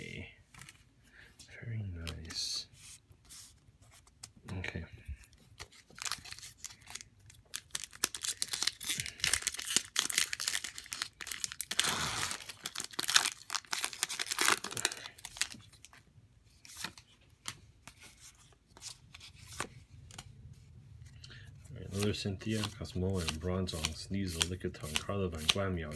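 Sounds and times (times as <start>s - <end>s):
foil wrapper crinkling: 5.9s - 15.9s.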